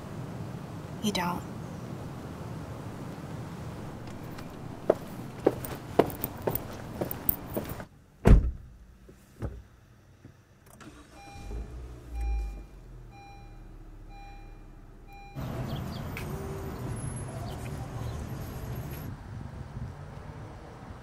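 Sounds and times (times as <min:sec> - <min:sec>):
street traffic hiss: 0:00.0 - 0:07.9, 0:15.4 - 0:21.0
footsteps on hard ground: 0:04.0 - 0:07.9
car door shutting: 0:08.2 - 0:08.8
car engine starting: 0:10.6 - 0:19.0
dashboard warning chime beeping: 0:11.0 - 0:15.6.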